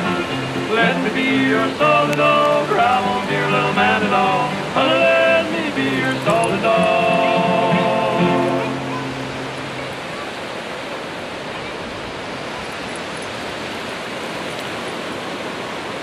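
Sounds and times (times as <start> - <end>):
background music: 0.0 - 9.6
gentle surf washing: 0.0 - 16.0.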